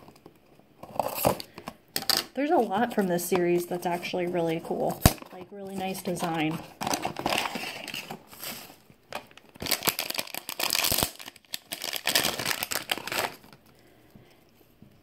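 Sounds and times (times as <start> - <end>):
foil wrapper crinkling: 2.4 - 13.8.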